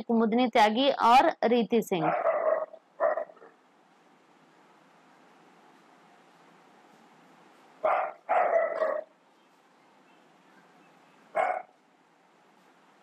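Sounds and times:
dog barking: 2.0s - 3.5s, 7.8s - 9.1s, 11.3s - 11.8s
faint steady hiss: 2.6s - 13.0s.

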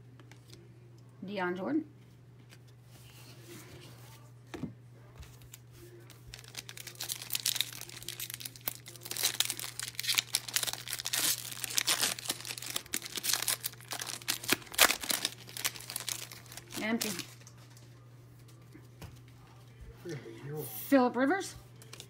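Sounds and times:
wrapper tearing and crinkling: 6.1s - 17.8s.

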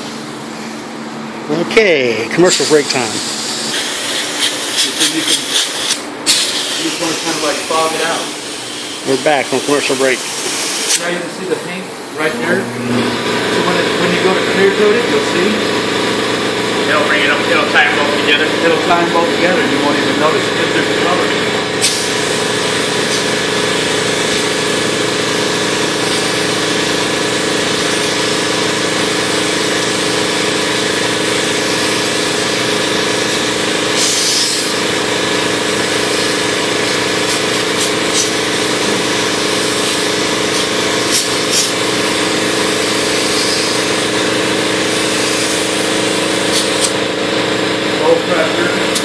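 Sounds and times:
steady mechanical hum: 0.0s - 49.0s
paint spray gun hissing: 2.5s - 11.2s, 21.8s - 47.0s.

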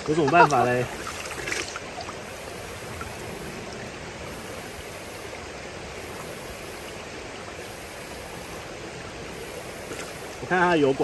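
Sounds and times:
stream running over rocks: 0.0s - 11.0s.

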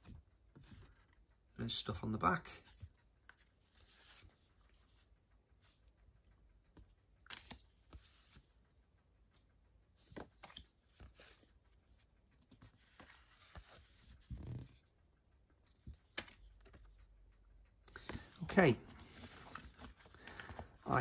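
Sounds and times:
cards rustling: 2.7s - 5.0s, 7.2s - 8.6s, 10.0s - 11.5s, 12.5s - 14.8s, 15.7s - 16.9s, 17.9s - 21.0s.

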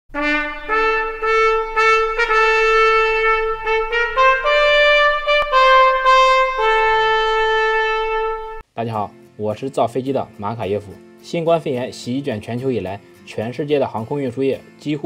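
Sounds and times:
solo trumpet melody: 0.1s - 8.6s.

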